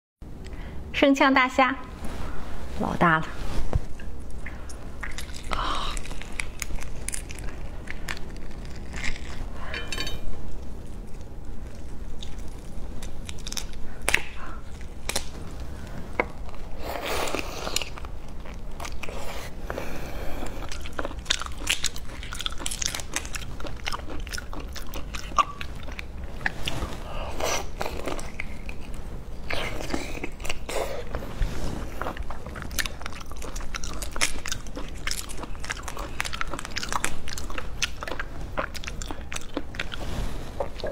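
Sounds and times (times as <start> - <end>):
biting and chewing: 5.0 - 9.9, 10.6 - 15.5, 20.5 - 40.0.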